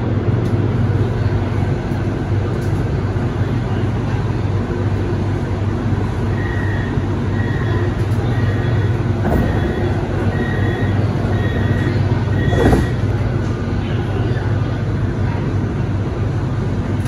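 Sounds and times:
train hum: 0.0s - 17.0s
short high beep: 6.4s - 13.0s.

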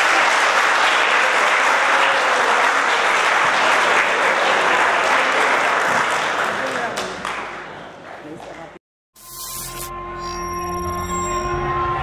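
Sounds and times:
crowd applauding: 0.0s - 8.4s.

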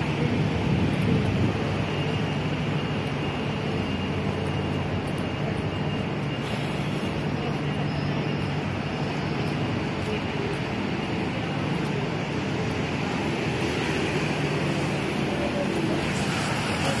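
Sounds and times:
city traffic rumble: 0.0s - 17.0s
machinery hum: 0.0s - 17.0s.

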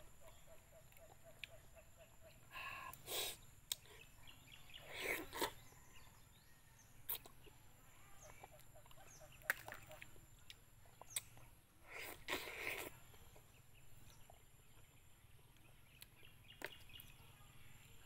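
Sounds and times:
lip smacks: 3.6s - 3.9s
sucking and slurping: 4.7s - 6.0s, 10.8s - 13.5s.

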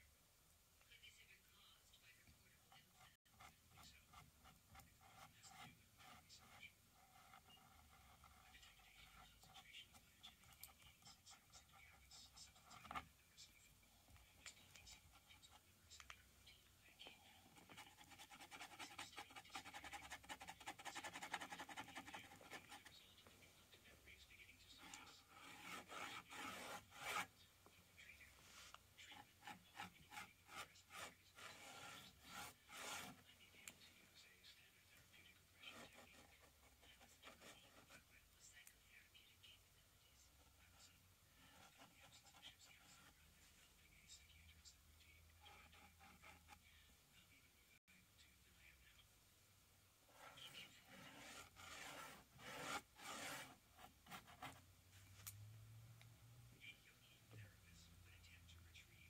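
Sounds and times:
paintbrush scrubbing on canvas: 29.4s - 33.2s, 50.2s - 53.6s.

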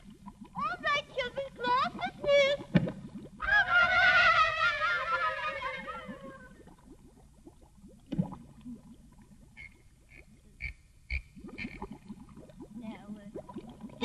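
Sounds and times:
low underwater bubbling: 0.0s - 14.0s.

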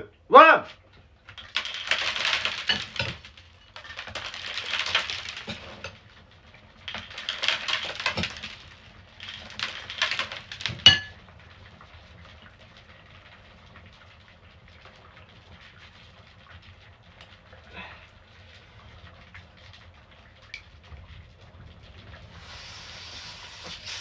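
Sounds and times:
cola fizzing in plastic bottle: 1.0s - 24.0s
spoon clinking: 10.9s - 11.1s.

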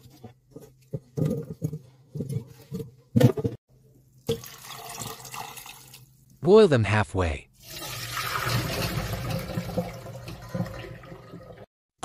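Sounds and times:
water pouring into pot: 4.2s - 6.1s, 7.6s - 11.7s.

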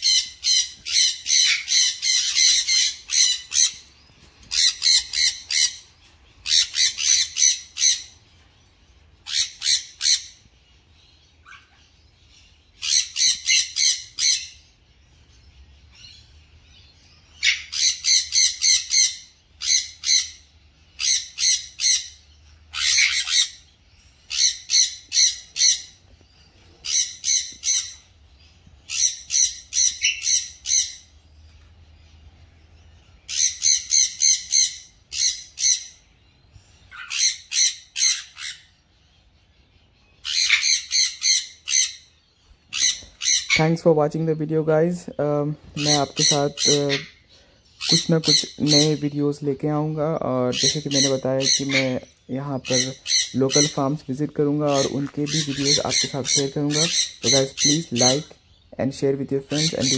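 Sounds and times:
parrots screeching: 0.0s - 8.2s, 9.2s - 10.5s, 11.3s - 14.8s, 17.3s - 31.2s, 33.2s - 38.9s, 40.0s - 43.8s, 45.6s - 49.1s, 50.5s - 58.7s, 59.4s - 59.9s.

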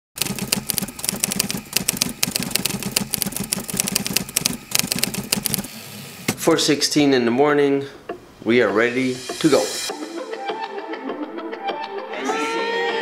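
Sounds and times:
typewriter keys clacking: 0.2s - 5.7s.

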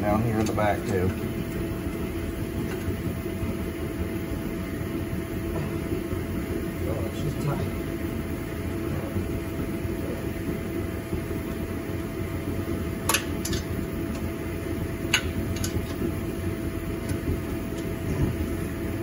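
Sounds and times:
background hum: 0.0s - 19.0s.

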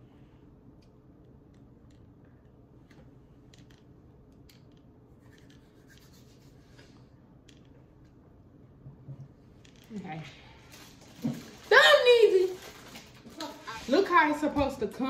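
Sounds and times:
low room hum: 0.0s - 15.0s
wrapper crinkling: 10.5s - 14.2s.

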